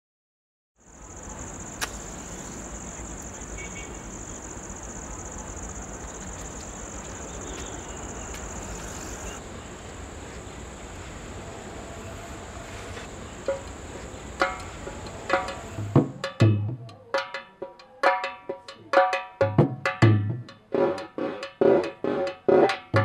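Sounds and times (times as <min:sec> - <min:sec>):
insects chirring: 0:00.8 - 0:16.4
outdoor background hiss: 0:00.8 - 0:23.0
sharp click: 0:01.8 - 0:02.1.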